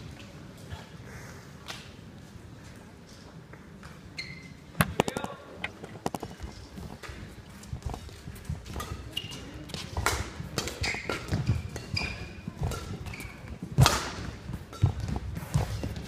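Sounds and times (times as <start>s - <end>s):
court shoes squeaking: 3.1s - 16.0s
rackets hitting shuttlecock: 4.8s - 7.2s, 8.6s - 16.0s
footfalls on court floor: 6.1s - 16.0s.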